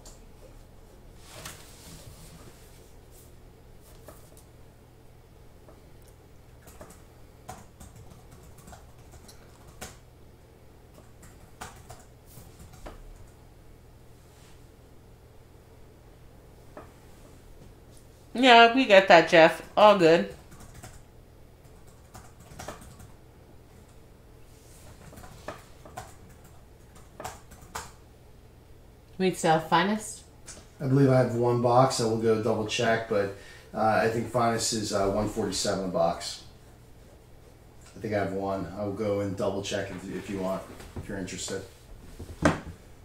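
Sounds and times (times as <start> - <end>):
low steady hum: 0.0 - 43.0
keyboard typing clicks: 21.6 - 23.1.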